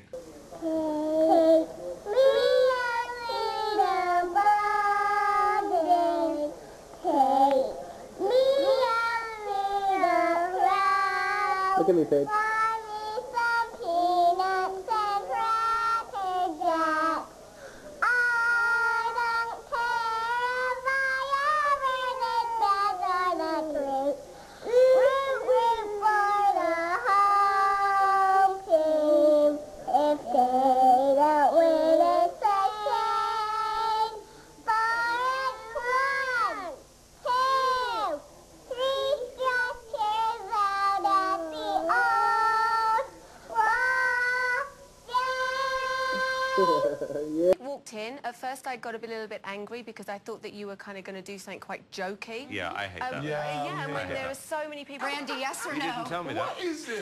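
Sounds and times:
young child singing: 0.6s - 17.3s, 18.0s - 47.0s.

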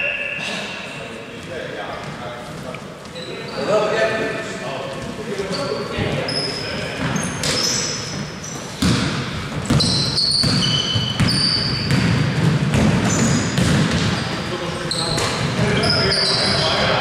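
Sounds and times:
sneakers squeaking on floor: 0.0s - 3.9s, 4.9s - 17.0s
basketball bouncing: 7.0s - 14.5s.

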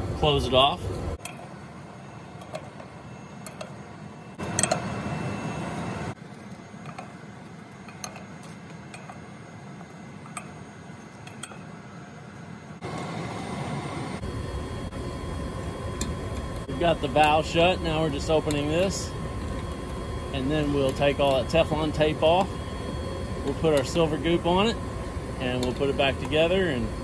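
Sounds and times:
low steady background noise: 0.0s - 27.0s
wrench clinking on valve wheel: 4.4s - 4.9s, 7.8s - 9.3s.

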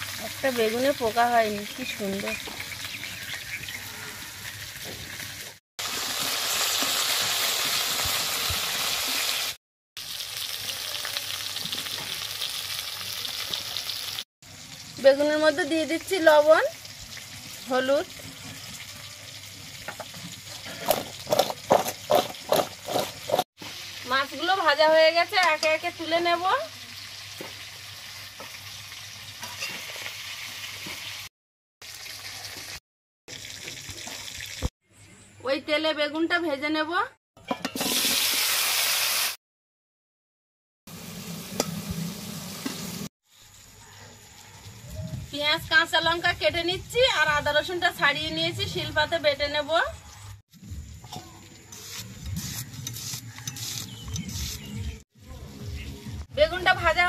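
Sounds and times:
fish frying in hot oil: 0.0s - 3.7s, 4.3s - 24.7s, 26.5s - 34.7s.

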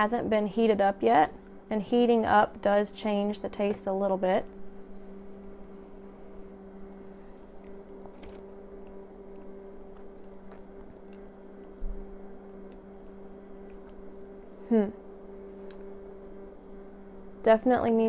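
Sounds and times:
low hum: 0.0s - 18.0s.

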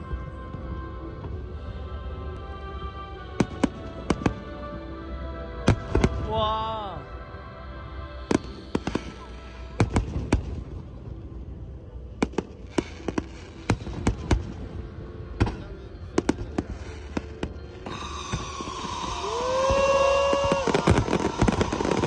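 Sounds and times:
firework shells bursting: 17.1s - 22.0s.

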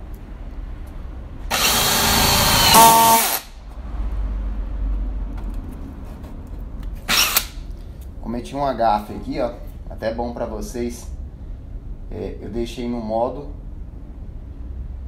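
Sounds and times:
cordless drill boring into wood: 1.5s - 3.6s, 7.1s - 7.6s.

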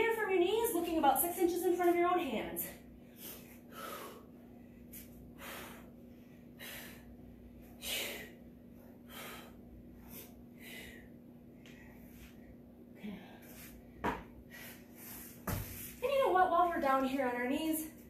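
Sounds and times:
woman breathing hard: 3.0s - 13.7s, 14.4s - 15.4s.

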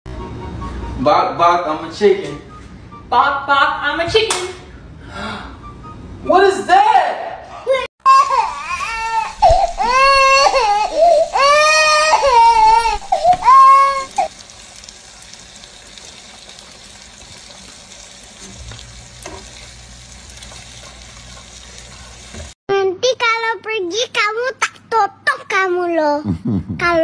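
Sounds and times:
child crying loudly: 8.1s - 14.3s
steady hiss: 8.4s - 20.5s.

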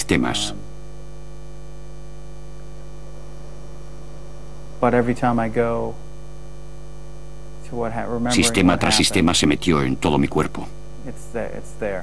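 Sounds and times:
person speaking: 0.0s - 0.6s, 7.8s - 12.0s
electrical hum: 0.0s - 12.0s.

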